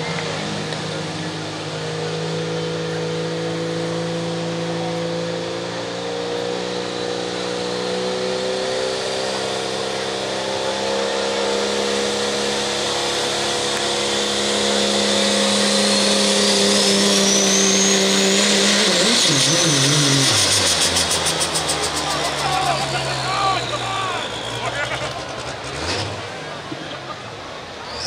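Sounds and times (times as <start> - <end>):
diesel truck engine revving: 0.0 - 28.0
turbocharger whistle: 12.6 - 26.1, 27.8 - 28.0.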